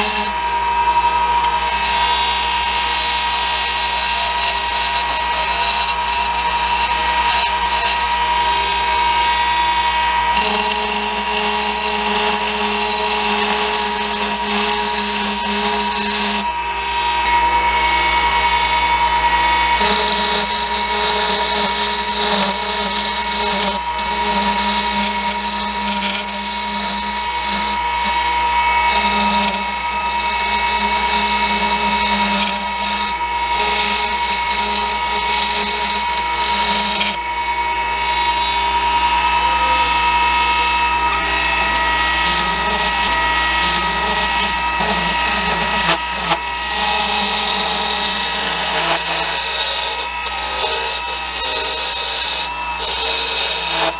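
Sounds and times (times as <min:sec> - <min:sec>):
turning tool scraping wood: 0:00.0 - 0:16.6, 0:19.6 - 0:37.2, 0:41.3 - 0:53.9
wood lathe whining: 0:00.0 - 0:53.9.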